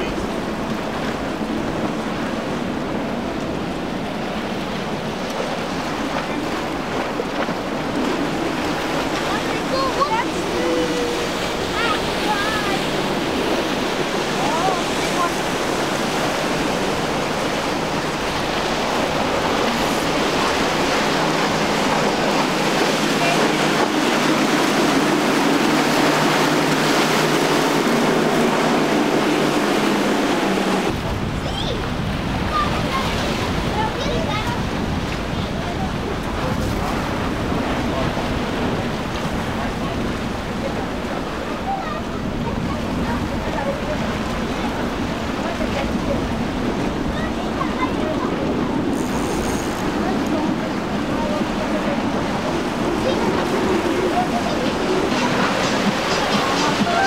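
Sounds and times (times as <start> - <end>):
outboard engines humming: 0.0 - 57.0
waves and surf: 0.0 - 57.0
wind buffeting microphone: 0.0 - 57.0.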